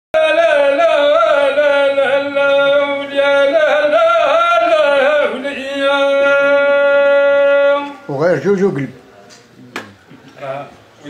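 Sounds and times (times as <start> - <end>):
man singing wordless line: 0.2 - 8.3.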